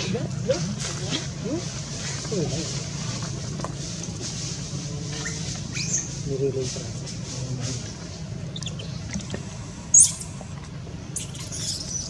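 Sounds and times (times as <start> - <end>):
high-pitched animal squeak: 9.9 - 10.3, 11.2 - 12.0.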